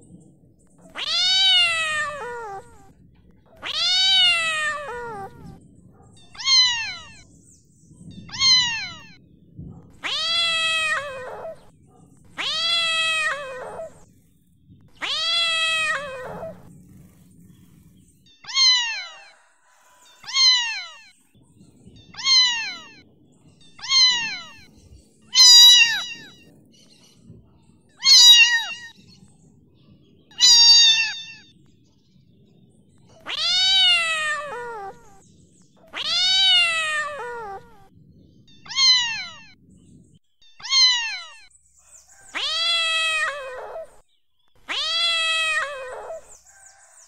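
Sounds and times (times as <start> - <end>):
cat meowing: 0.8 - 5.6, 6.2 - 7.3, 8.2 - 9.2, 9.9 - 11.7, 12.3 - 14.1, 15.0 - 16.7, 18.3 - 19.5, 20.2 - 21.2, 22.0 - 23.0, 23.7 - 24.7, 25.3 - 26.5, 28.0 - 29.0, 30.3 - 31.6, 33.2 - 35.2, 35.8 - 37.9, 38.5 - 39.6, 40.4 - 41.5, 42.2 - 44.0, 44.6 - 46.4.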